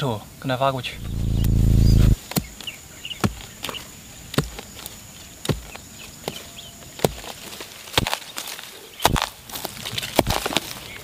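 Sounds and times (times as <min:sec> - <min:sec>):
hand hoe striking soil: 0:08.0 - 0:08.2, 0:09.1 - 0:10.7.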